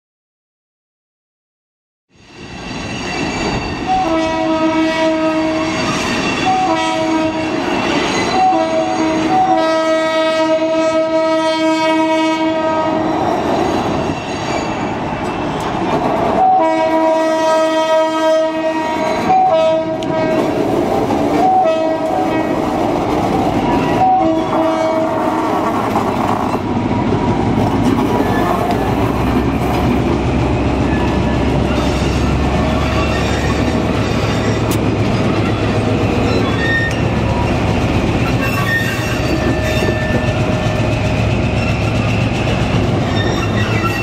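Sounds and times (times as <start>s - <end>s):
train rumbling: 2.2s - 44.0s
locomotive chime air horn blasts: 3.8s - 7.6s, 8.3s - 13.0s, 16.4s - 20.5s, 21.4s - 22.5s, 23.9s - 25.4s.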